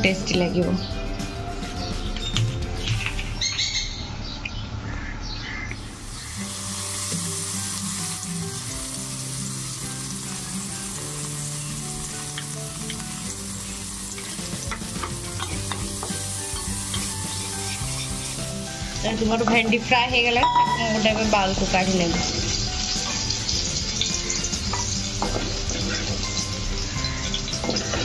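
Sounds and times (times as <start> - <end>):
okra sizzling in hot oil: 5.9 - 28.0.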